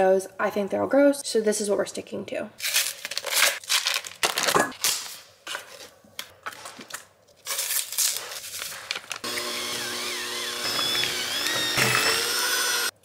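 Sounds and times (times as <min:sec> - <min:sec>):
foil and paper packaging crinkling: 0:02.6 - 0:09.3
electric hand mixer whirring: 0:09.2 - 0:13.0.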